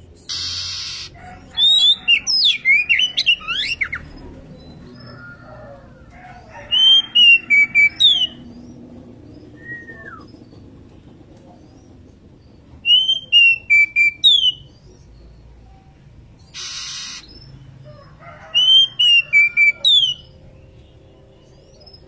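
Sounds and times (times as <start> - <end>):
bird whistling call: 0.3 - 4.0, 12.8 - 14.6, 16.6 - 17.4.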